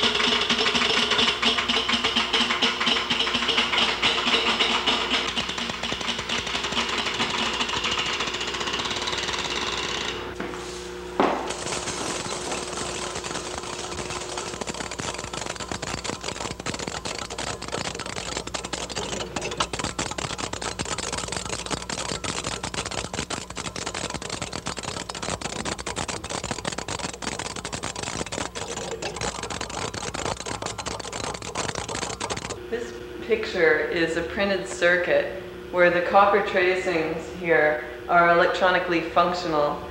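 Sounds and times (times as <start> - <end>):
fast dense electronic clicking: 0.0 - 10.1, 11.5 - 32.6
buzzy electronic drone: 11.5 - 32.9.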